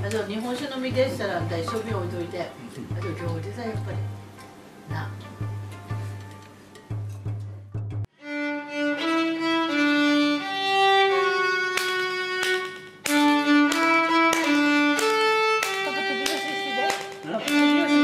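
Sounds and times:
solo violin melody: 0:08.1 - 0:18.0.

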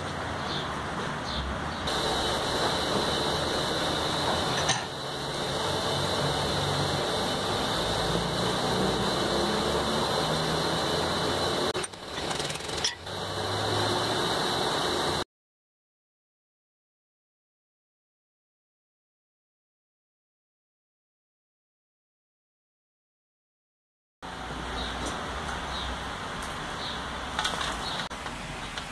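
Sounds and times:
mechanical hum and hiss: 0:00.0 - 0:15.2.

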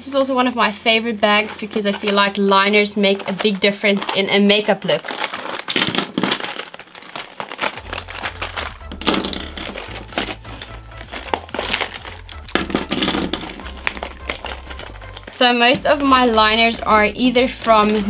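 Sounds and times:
plastic bag crinkling: 0:00.9 - 0:18.0
pencils clattering onto wooden table: 0:05.1 - 0:16.2
background music with low bass: 0:07.8 - 0:18.0.

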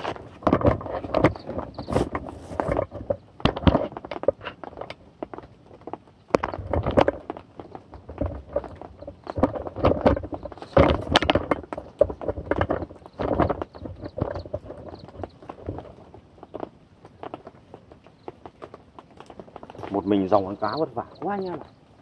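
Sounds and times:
handling noise knocks and rustles: 0:00.0 - 0:21.8.

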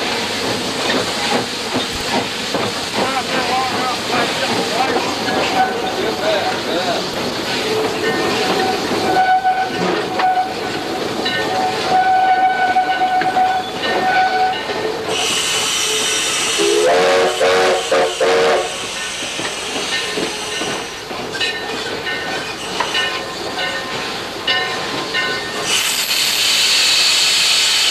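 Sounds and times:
steam hissing: 0:00.0 - 0:23.4, 0:24.0 - 0:27.9
steam whistle blasts: 0:08.6 - 0:10.6, 0:11.6 - 0:14.6, 0:15.2 - 0:18.9.

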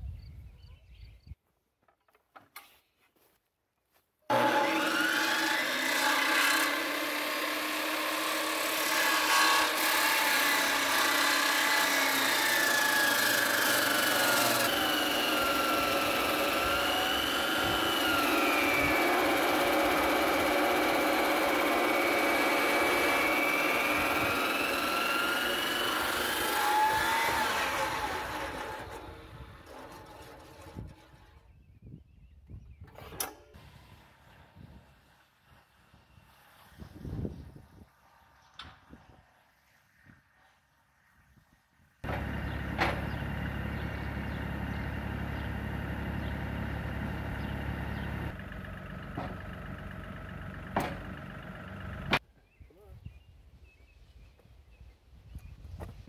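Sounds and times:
circular saw cutting timber: 0:04.3 - 0:31.6, 0:42.0 - 0:52.2.

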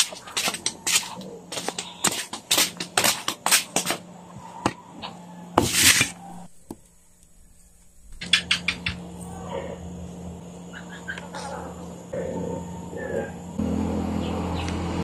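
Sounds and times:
scraping rustle: 0:05.6 - 0:06.5.

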